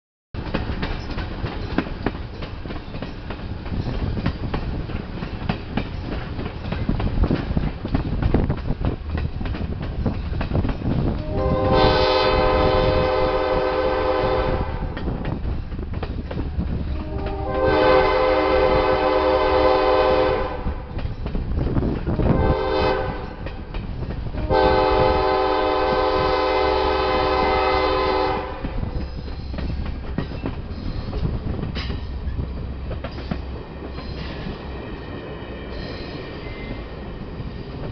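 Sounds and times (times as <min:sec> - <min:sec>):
train wheels clacking on rails: 0:00.4 - 0:37.9
train horn blasts: 0:11.2 - 0:15.0, 0:16.9 - 0:20.9, 0:22.3 - 0:23.5, 0:24.3 - 0:29.0.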